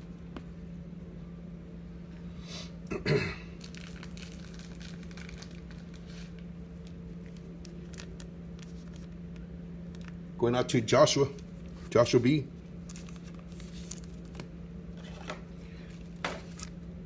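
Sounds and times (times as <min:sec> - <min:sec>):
low electrical hum: 0:00.0 - 0:17.0
foil wrapper crinkling: 0:03.6 - 0:10.2, 0:12.8 - 0:14.5.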